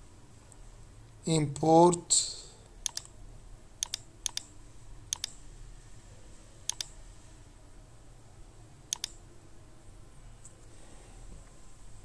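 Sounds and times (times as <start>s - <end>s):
computer mouse clicking: 2.8s - 3.1s, 3.8s - 4.5s, 5.1s - 5.4s, 6.7s - 7.0s, 8.9s - 9.2s.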